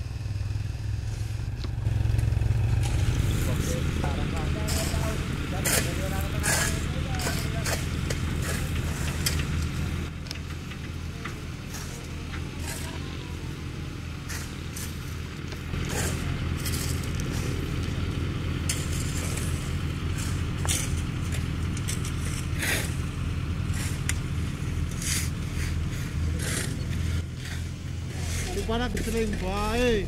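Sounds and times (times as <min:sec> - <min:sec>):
heavy diesel machinery running: 0:00.0 - 0:30.0
short scrapes: 0:04.6 - 0:07.8, 0:15.8 - 0:17.6, 0:24.9 - 0:29.3.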